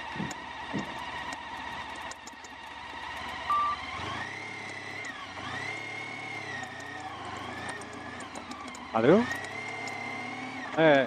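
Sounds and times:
motorcycle engine running: 0.0s - 11.0s
short electronic beep: 3.5s - 3.8s.

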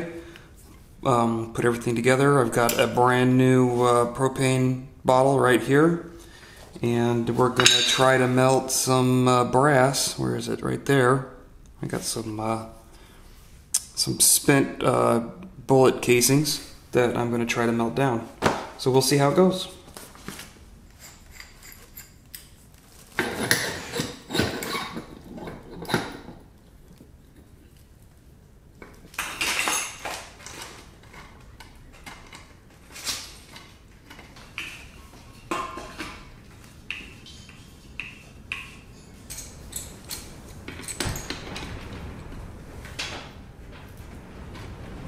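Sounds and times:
metal parts clinking and knocking: 37.0s - 42.6s.

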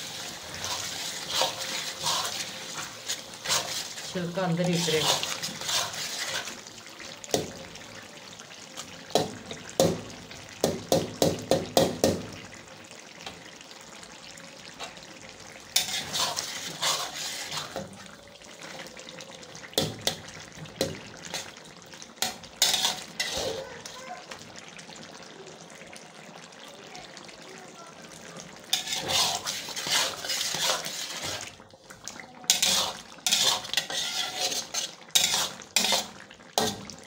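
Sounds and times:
spatula scraping a pan: 0.0s - 6.8s, 15.7s - 18.9s, 19.8s - 21.6s, 22.2s - 24.0s, 28.6s - 31.6s, 32.5s - 37.0s
chicken sizzling in a pan: 0.0s - 37.0s
spatula tapping a pan: 9.1s - 12.3s.

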